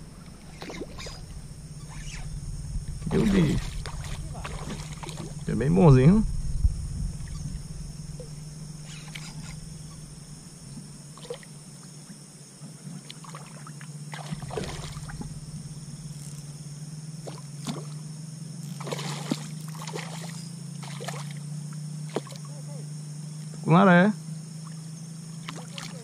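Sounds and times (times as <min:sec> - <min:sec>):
fish splashing at water surface: 0:03.1 - 0:05.4, 0:13.1 - 0:15.4, 0:18.8 - 0:21.4, 0:25.4 - 0:26.0.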